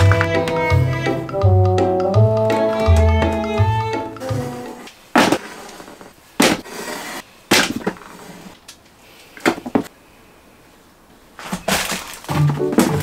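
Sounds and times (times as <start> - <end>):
foil sheets crackling: 11.4 - 13.0.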